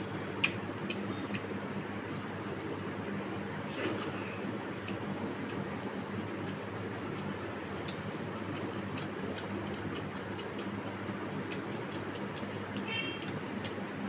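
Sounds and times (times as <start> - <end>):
steady low hum: 0.0 - 14.0
chewing clicks: 0.4 - 1.5, 4.8 - 13.8.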